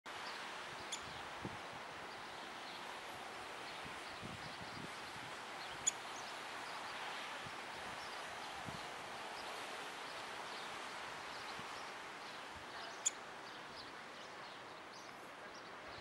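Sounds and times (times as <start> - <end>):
outdoor winter hush: 0.1 - 16.0
faint bird chirps: 5.6 - 6.3, 12.8 - 13.7.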